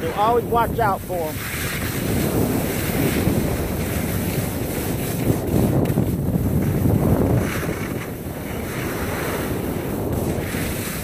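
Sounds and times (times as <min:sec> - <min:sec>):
skis hissing over snow: 0:00.0 - 0:11.0
wind buffeting microphone: 0:00.0 - 0:11.0.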